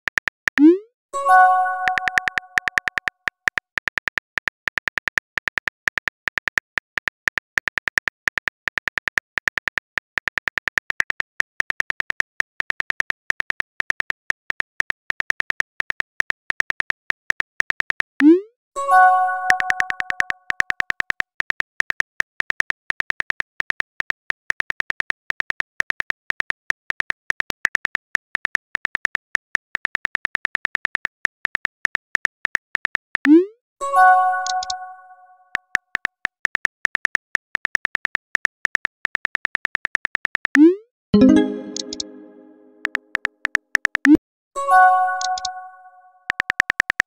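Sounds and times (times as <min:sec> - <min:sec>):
chiming chord: 0:01.2 - 0:02.2, 0:18.8 - 0:19.8, 0:41.2 - 0:42.8, 0:44.6 - 0:46.1
phone keyboard typing clicks: 0:01.8 - 0:08.5, 0:19.3 - 0:29.7, 0:34.3 - 0:35.1, 0:36.0 - 0:44.2, 0:45.0 - 0:47.0.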